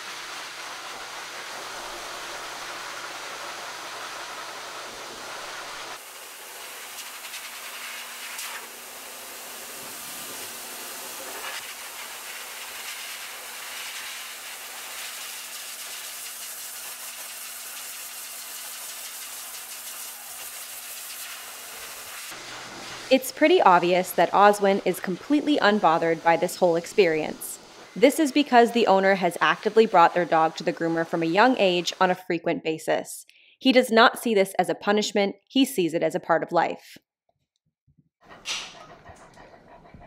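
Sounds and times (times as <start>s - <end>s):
pet dryer blowing air: 0.0s - 16.1s, 16.7s - 27.9s.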